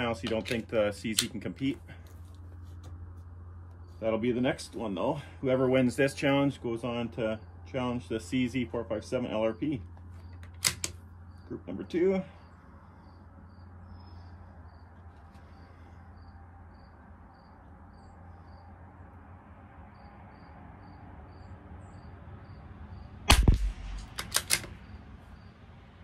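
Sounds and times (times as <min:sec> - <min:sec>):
crickets chirping: 0:00.0 - 0:26.0
rifle bolt clicks: 0:10.4 - 0:11.0, 0:23.3 - 0:24.8
rifle shot: 0:23.3 - 0:24.9.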